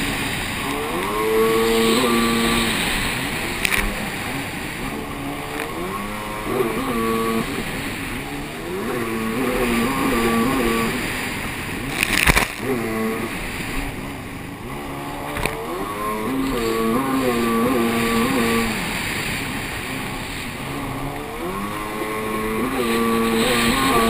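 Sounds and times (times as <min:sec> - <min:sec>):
jet ski engine revving: 0:00.0 - 0:24.0
water and wind rush: 0:00.0 - 0:24.0.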